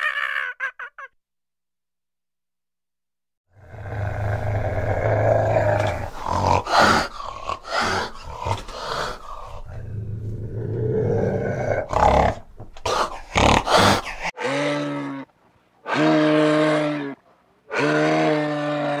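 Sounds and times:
cat growling: 3.6 - 15.3.

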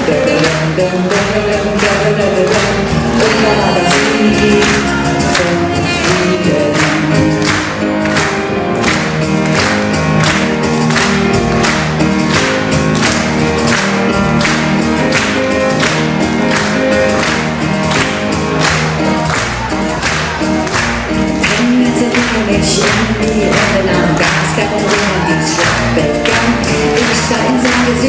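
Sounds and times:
woman singing: 0.0 - 7.6, 21.4 - 28.0
grand piano: 0.0 - 28.0
percussion: 0.0 - 28.0
upright double bass: 0.0 - 28.0
saxophone: 2.7 - 8.6.

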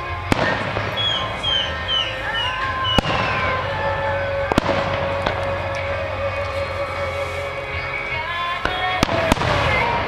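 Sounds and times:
high whistles of fireworks: 0.0 - 10.0
fireworks booms: 0.3 - 5.8, 8.6 - 10.0.

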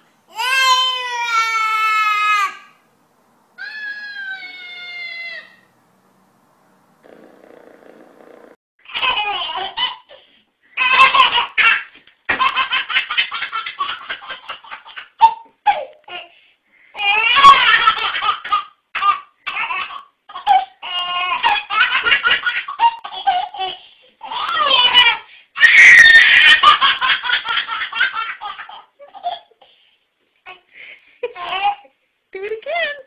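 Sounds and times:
baby laughing: 8.9 - 10.2, 10.8 - 16.2, 17.0 - 29.6.

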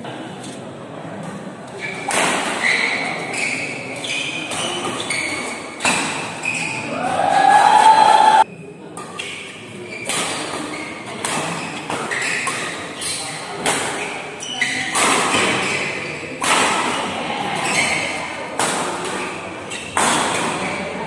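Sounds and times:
shoes squeaking on court: 1.8 - 6.9, 9.2 - 16.3, 17.5 - 18.3.

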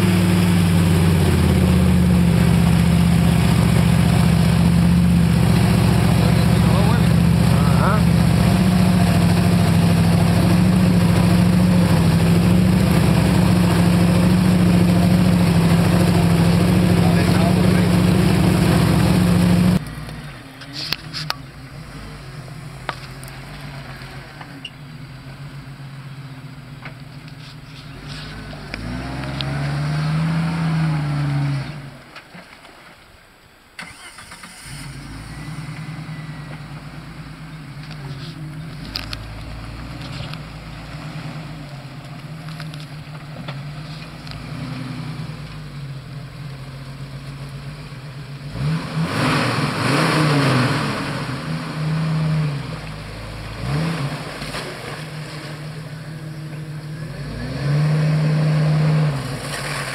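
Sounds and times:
vehicle driving through water: 0.0 - 33.1, 33.8 - 59.9
off-road vehicle engine: 0.0 - 59.9.

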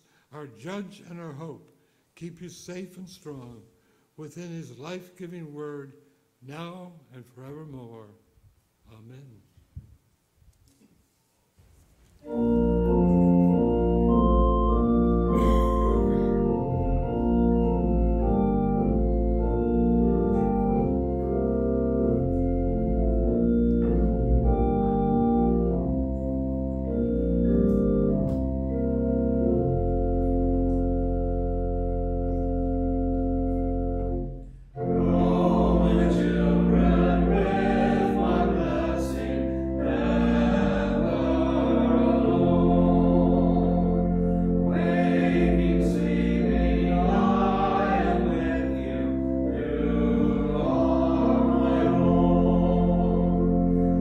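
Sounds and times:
organ playing chords: 12.2 - 54.0
small choir singing: 34.8 - 54.0.

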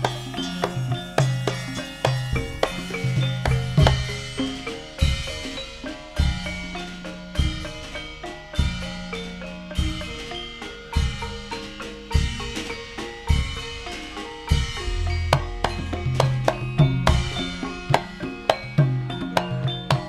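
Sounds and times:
gamelan music: 0.0 - 20.0
metallophones ringing: 0.0 - 20.0
heavy low drum strokes: 14.5 - 19.3.

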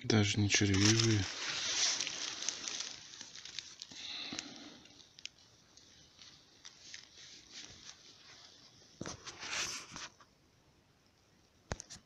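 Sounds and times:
dry leaves rustling and crackling: 0.4 - 8.2.

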